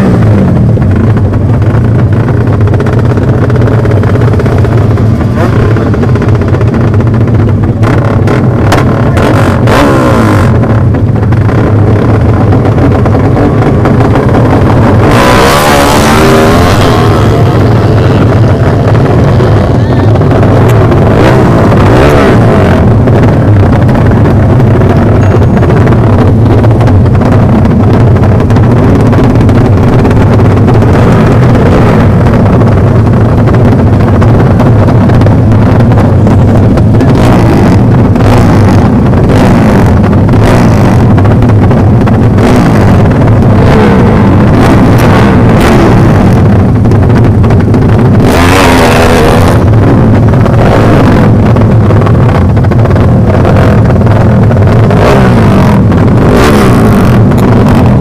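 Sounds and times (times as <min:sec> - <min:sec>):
motorcycle engines running: 0:00.0 - 0:58.0
motorcycle revving and accelerating past: 0:07.8 - 0:10.6, 0:13.4 - 0:23.4, 0:42.4 - 0:46.4, 0:48.1 - 0:51.4, 0:53.4 - 0:58.0.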